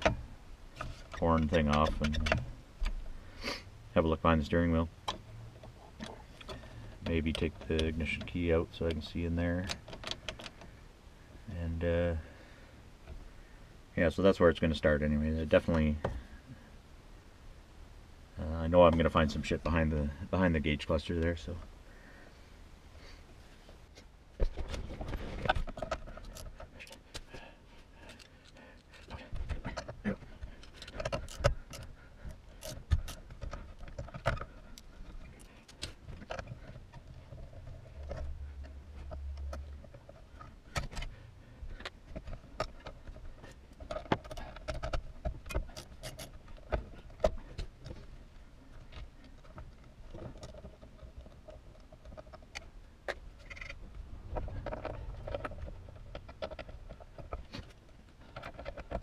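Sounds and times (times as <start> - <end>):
tools clicking and rattling: 0.0 - 3.0, 24.5 - 59.0.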